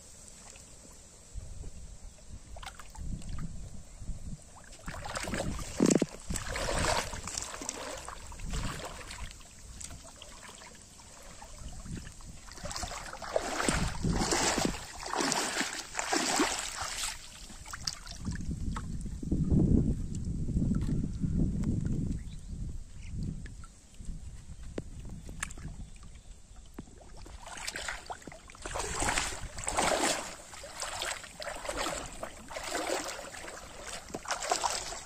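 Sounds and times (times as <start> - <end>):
person wading through water: 4.5 - 19.0, 25.3 - 35.0.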